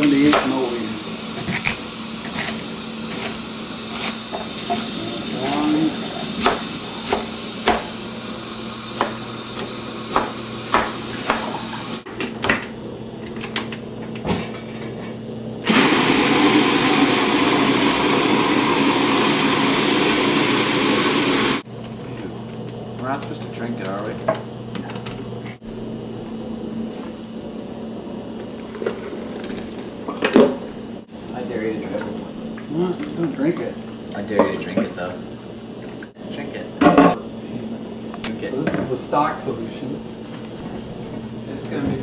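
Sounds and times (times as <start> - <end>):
food processor running: 0.0 - 12.1, 15.6 - 21.7
knife chopping on cutting board: 6.4 - 7.9, 9.0 - 11.6.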